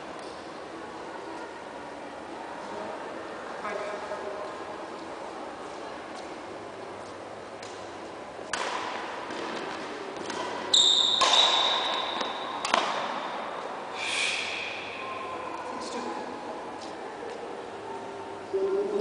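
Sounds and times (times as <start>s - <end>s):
racket striking shuttlecock: 8.4s - 13.6s
shoes squeaking on court floor: 9.6s - 12.8s.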